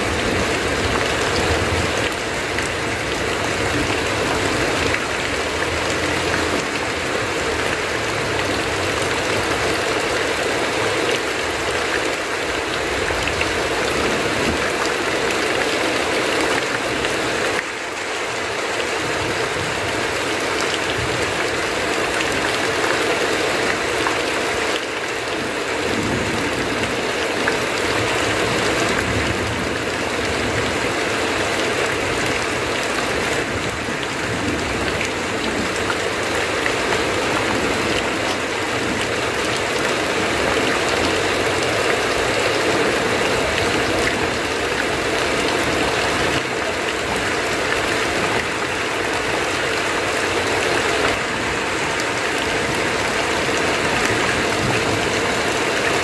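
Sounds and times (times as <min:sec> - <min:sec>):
heavy rain on tin roof: 0:00.0 - 0:56.0
water pouring off eaves: 0:00.0 - 0:56.0.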